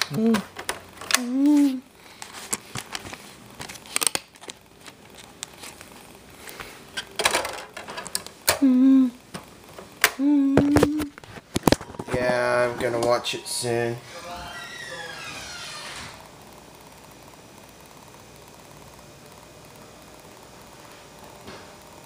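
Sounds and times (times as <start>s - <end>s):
person humming: 0.0s - 0.5s, 1.1s - 1.9s, 8.5s - 9.3s, 10.0s - 11.2s
crinkling: 0.0s - 8.4s, 10.6s - 14.1s.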